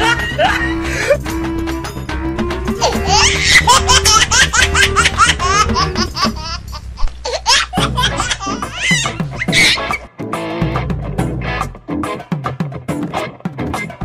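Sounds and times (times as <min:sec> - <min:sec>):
background music: 0:00.0 - 0:14.0
high-pitched laughter: 0:02.8 - 0:10.0.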